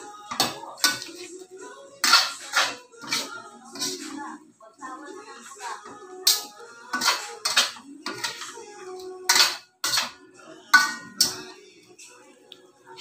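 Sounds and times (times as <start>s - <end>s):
metal spoon scraping a wok: 0.3s - 1.4s, 2.0s - 4.4s, 5.5s - 11.6s.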